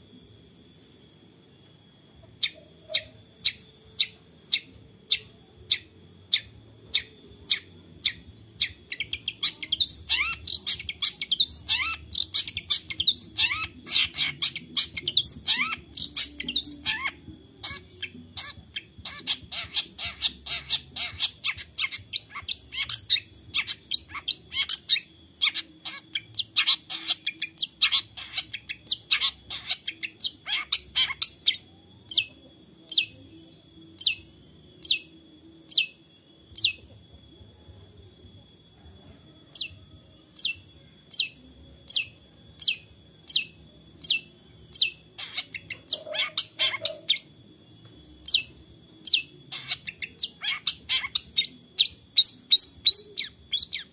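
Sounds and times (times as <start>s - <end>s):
fast chattering birdsong: 2.9s - 32.2s, 40.4s - 47.4s, 48.2s - 53.9s.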